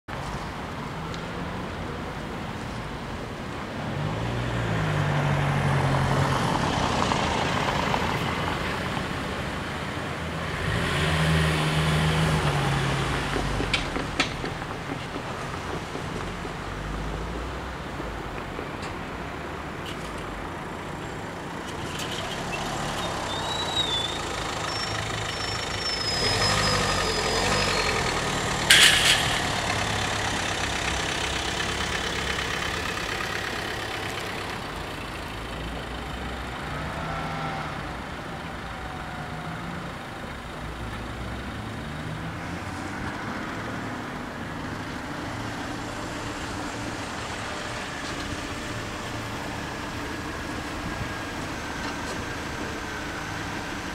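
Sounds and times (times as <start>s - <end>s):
car engines idling: 11.6s - 53.9s
high squeal: 21.8s - 30.8s
sharp clack: 28.5s - 30.6s.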